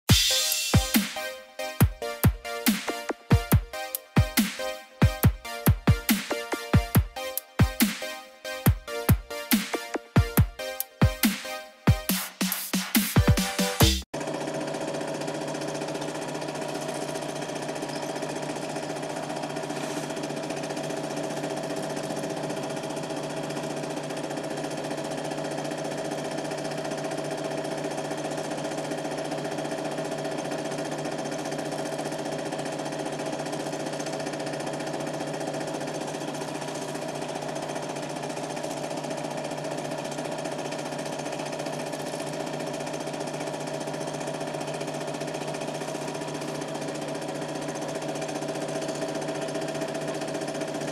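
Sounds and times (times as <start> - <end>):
film projector whirring and clattering: 0.1 - 50.9.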